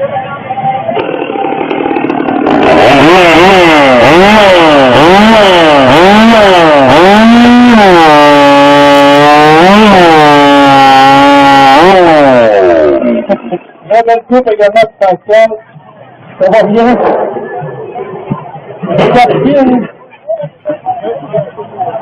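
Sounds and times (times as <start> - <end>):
chainsaw revving and cutting log: 1.0 - 13.4.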